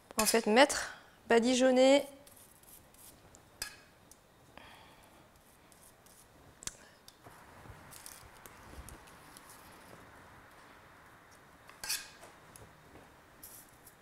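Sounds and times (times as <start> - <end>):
pastry brush scratchy brushing: 2.2 - 3.2, 5.4 - 6.4, 7.9 - 10.0, 13.4 - 14.0.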